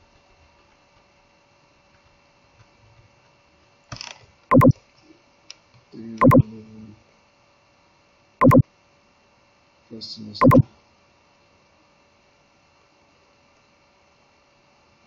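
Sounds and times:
mouse button clicks: 0:04.5 - 0:04.7, 0:08.4 - 0:08.6, 0:10.4 - 0:10.6.

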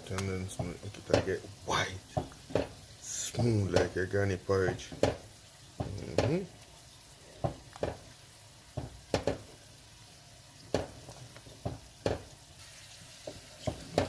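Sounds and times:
wooden spoon stirring thick porridge: 0:00.4 - 0:05.2, 0:07.3 - 0:08.1, 0:13.2 - 0:14.0.

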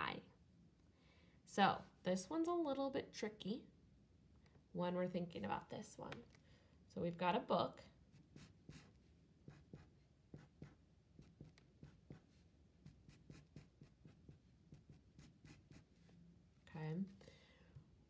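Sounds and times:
marker scratching on paper: 0:08.1 - 0:16.2.

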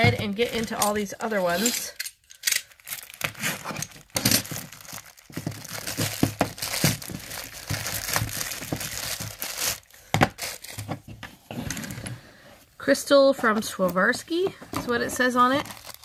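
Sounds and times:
plastic bag crinkling: 0:02.6 - 0:10.8, 0:14.9 - 0:16.0.

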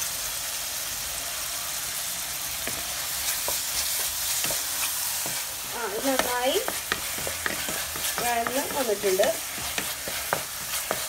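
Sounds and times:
vegetables sizzling in oil: 0:00.0 - 0:11.0
spoon scraping a pan: 0:02.6 - 0:11.0.

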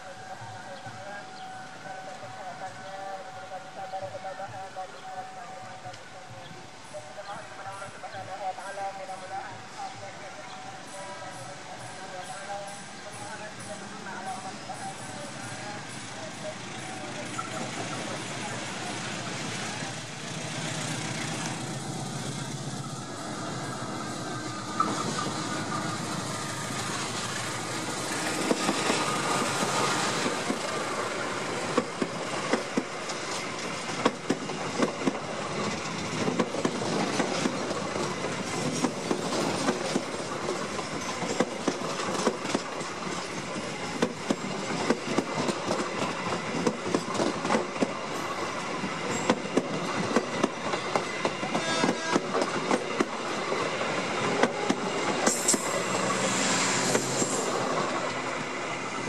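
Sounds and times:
diesel locomotive passing: 0:00.0 - 0:59.0
train wheels clacking over rail joints: 0:24.7 - 0:58.3.

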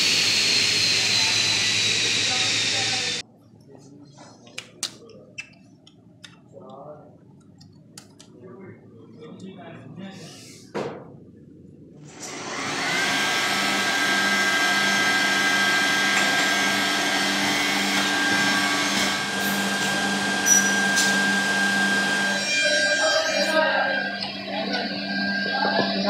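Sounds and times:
machine motors whining and humming: 0:00.0 - 0:03.2, 0:12.0 - 0:26.0.

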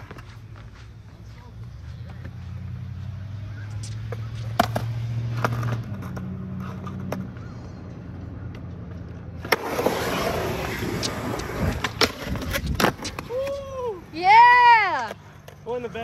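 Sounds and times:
wheels rolling over concrete: 0:08.5 - 0:16.0.

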